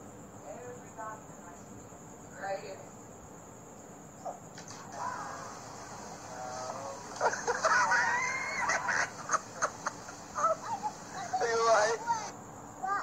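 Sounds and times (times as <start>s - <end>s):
high-pitched wavering cries: 4.9s - 12.3s.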